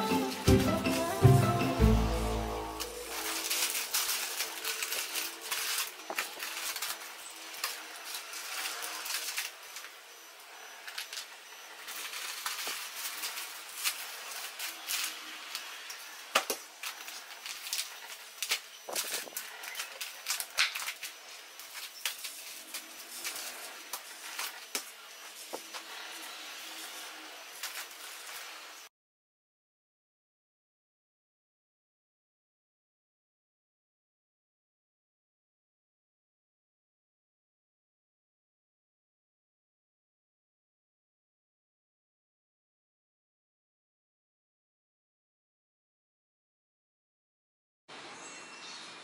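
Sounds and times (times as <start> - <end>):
plastic packaging crinkling: 2.8 - 9.9, 10.9 - 25.9, 27.6 - 28.4
packets set down on table: 18.4 - 21.1.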